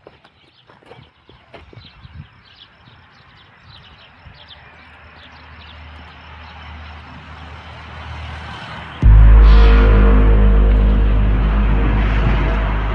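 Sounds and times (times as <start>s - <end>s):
low hum: 9.0s - 12.9s.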